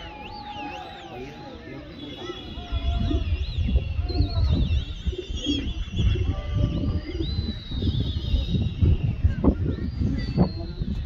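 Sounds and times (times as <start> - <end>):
pigeons warbling whistle calls: 0.0 - 11.0
wind rumble on microphone: 2.2 - 11.0.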